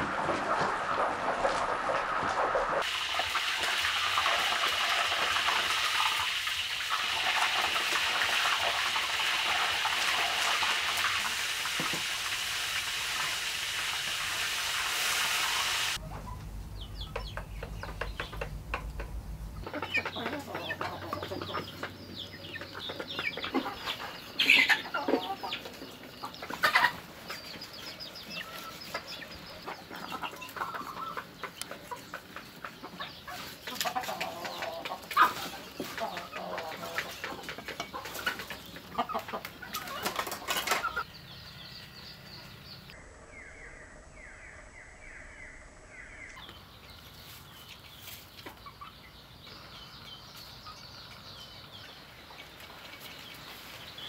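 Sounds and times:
chickens clucking: 0.0 - 43.0, 46.3 - 54.0
meat sizzling in hot oil: 2.7 - 16.0.

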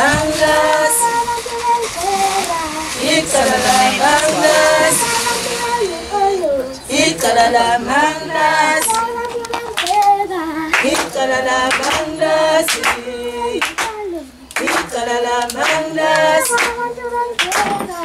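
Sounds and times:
children's choir singing: 0.0 - 18.0
hand claps: 8.7 - 18.0.

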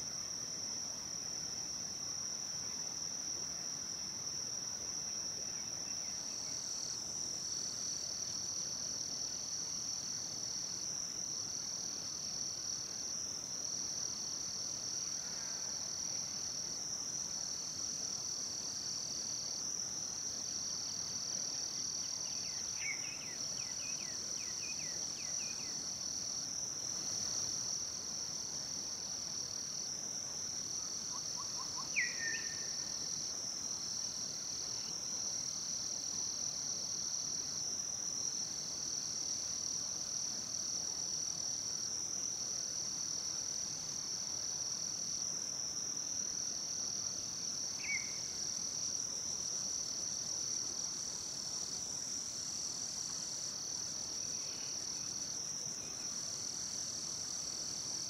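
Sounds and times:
lower insect trill: 0.0 - 58.0
high-pitched insect trilling: 30.7 - 37.3.

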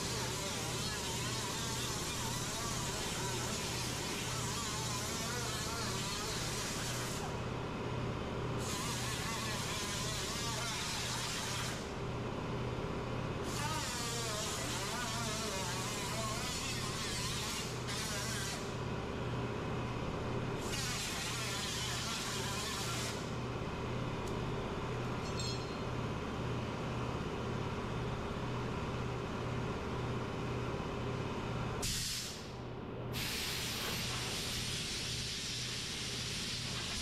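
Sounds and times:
compressed air hissing: 31.8 - 32.5, 33.1 - 37.0.

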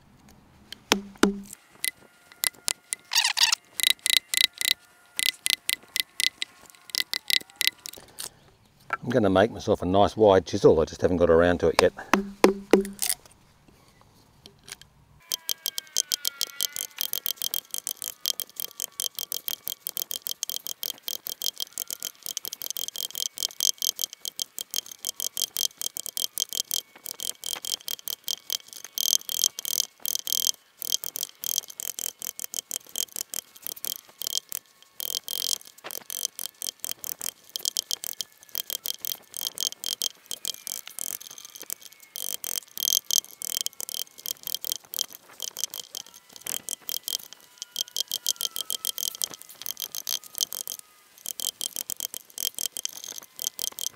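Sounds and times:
mallet knocking chisel into wood: 0.9 - 1.6, 12.1 - 13.1.

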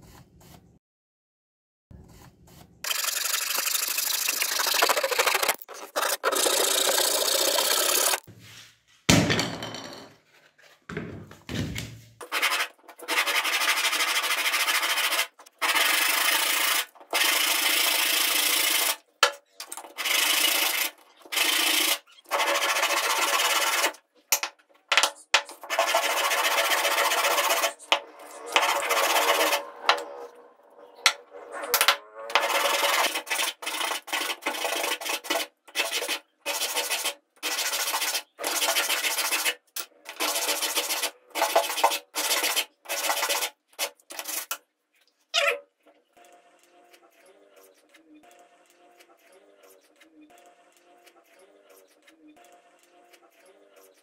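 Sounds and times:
wood sanded by hand: 12.3 - 16.9, 25.6 - 30.2, 32.3 - 39.5.

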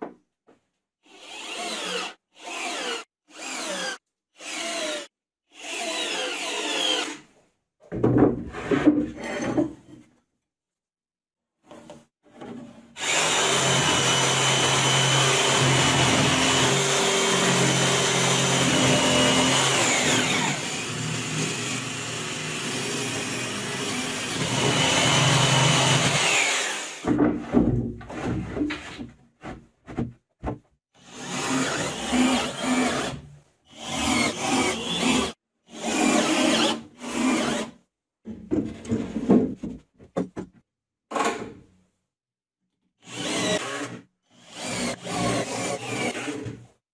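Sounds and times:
jigsaw cutting a board: 1.1 - 7.2, 13.0 - 27.1, 31.0 - 37.8, 43.0 - 46.6.

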